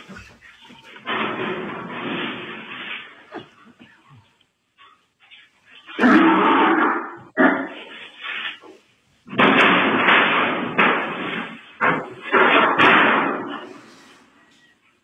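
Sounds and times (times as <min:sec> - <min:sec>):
heavy crashes against metal railings: 0:00.0 - 0:03.3, 0:09.3 - 0:14.4.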